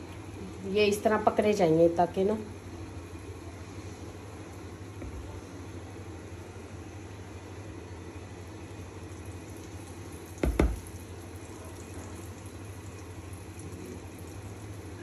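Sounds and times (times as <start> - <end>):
fritters sizzling in oil: 3.2 - 15.0.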